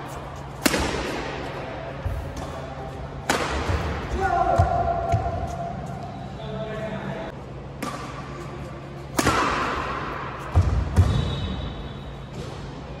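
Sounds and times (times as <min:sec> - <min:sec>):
racket hitting shuttlecock: 0:00.5 - 0:01.4, 0:02.3 - 0:05.6, 0:07.8 - 0:11.2.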